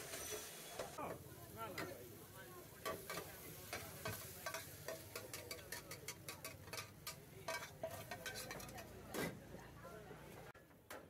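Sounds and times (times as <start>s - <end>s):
light frying sizzle: 0.0s - 9.0s
metal utensil clinking on frying pan: 2.8s - 8.9s.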